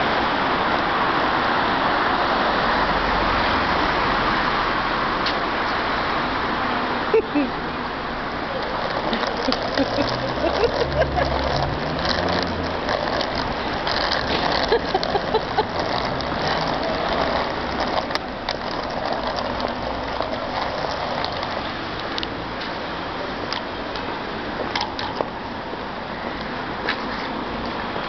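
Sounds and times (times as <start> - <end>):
city street noise: 0.0 - 28.0
trolley wheels rattling: 8.2 - 25.4.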